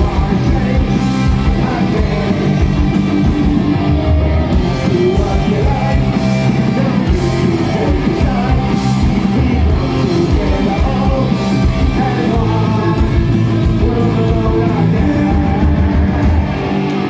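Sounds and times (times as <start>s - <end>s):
punk rock band playing: 0.0s - 17.0s.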